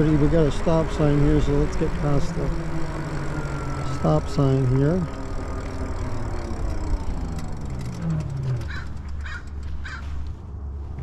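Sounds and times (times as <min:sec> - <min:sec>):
electric bike motor whine: 0:00.0 - 0:10.2
crow cawing: 0:08.6 - 0:10.2.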